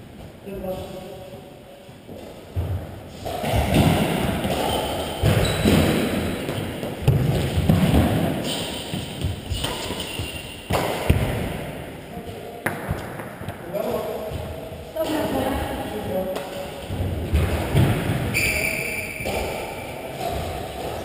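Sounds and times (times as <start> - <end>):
rackets striking shuttlecock: 3.4 - 11.4.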